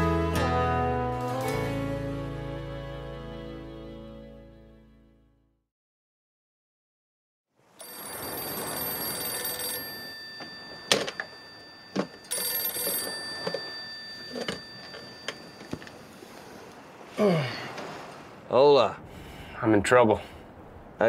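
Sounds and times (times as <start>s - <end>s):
telephone ringing: 7.8s - 16.3s.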